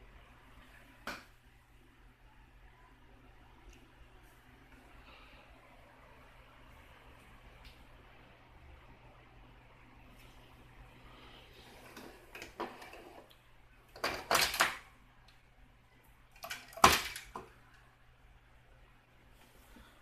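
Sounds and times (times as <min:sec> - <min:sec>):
plastic toy bricks clattering: 0:16.4 - 0:17.5.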